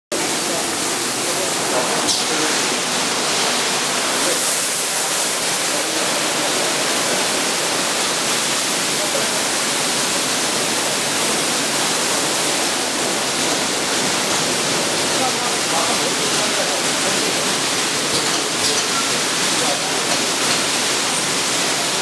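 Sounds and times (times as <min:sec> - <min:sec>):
car wash water spray: 0:00.1 - 0:22.0.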